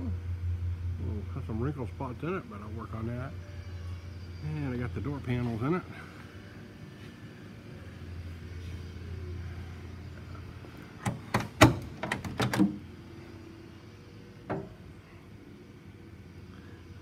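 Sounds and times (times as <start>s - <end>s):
car door clicks and knocks: 11.0s - 12.8s.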